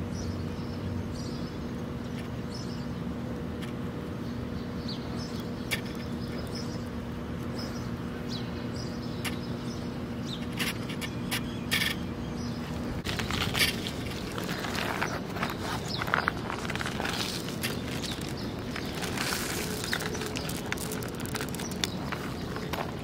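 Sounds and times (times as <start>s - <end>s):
steady low hum: 0.0s - 23.0s
cat eating dry food: 13.0s - 23.0s
plastic bag crinkling: 13.0s - 23.0s.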